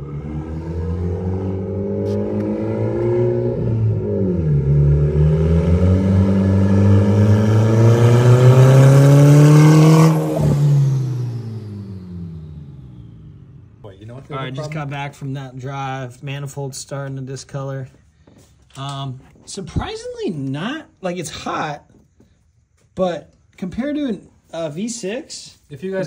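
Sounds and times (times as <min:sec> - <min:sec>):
car engine accelerating hard: 0:00.0 - 0:15.0.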